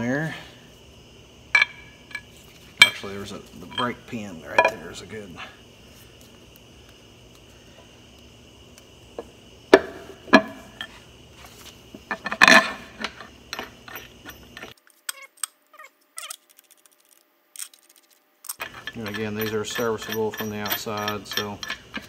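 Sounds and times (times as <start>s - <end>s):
metal bolts clinking and knocking: 18.5s - 22.0s.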